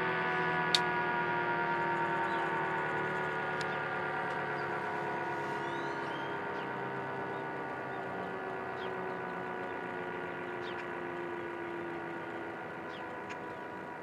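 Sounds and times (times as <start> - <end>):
two-tone siren winding down: 0.0 - 14.0.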